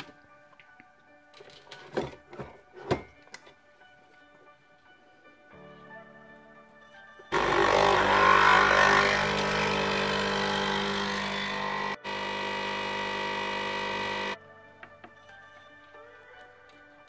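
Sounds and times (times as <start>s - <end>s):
coffee machine pump buzzing: 7.3s - 14.4s.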